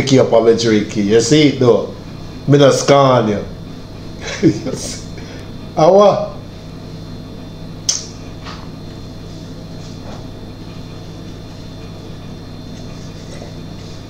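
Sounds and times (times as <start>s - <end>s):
steady low hum: 0.0s - 14.0s
sharp click: 7.9s - 8.6s.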